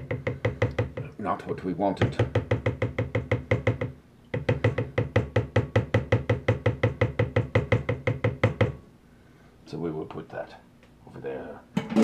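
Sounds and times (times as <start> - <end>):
strainer knocking on plastic bowl: 0.0 - 1.1, 2.0 - 8.8, 11.8 - 12.0.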